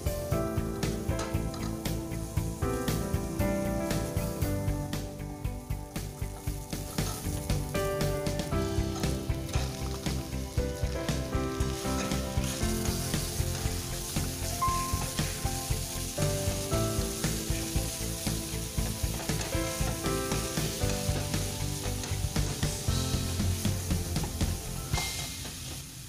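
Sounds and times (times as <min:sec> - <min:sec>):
meat sizzling in a pan: 0:00.0 - 0:26.0
music tones: 0:00.0 - 0:26.0
spatula stirring in pan: 0:06.2 - 0:26.0.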